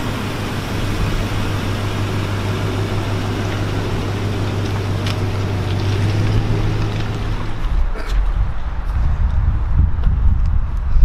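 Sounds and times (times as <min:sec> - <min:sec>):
pickup engine humming: 0:00.0 - 0:08.6
tyres on asphalt: 0:00.0 - 0:11.0.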